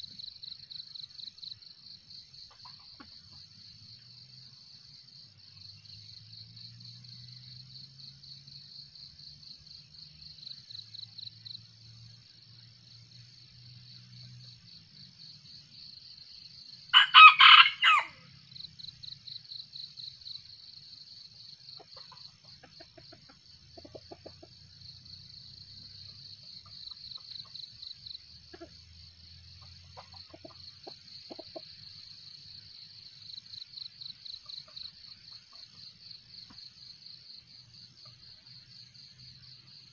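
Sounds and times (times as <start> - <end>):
insects trilling: 13.2 - 39.9
rooster crowing: 16.9 - 18.2.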